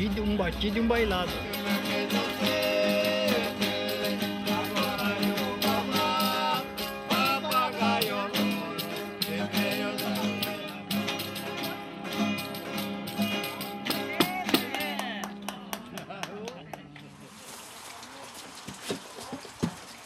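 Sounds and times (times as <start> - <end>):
jingling tambourine: 0.0 - 15.0
violas strummed: 0.0 - 15.9.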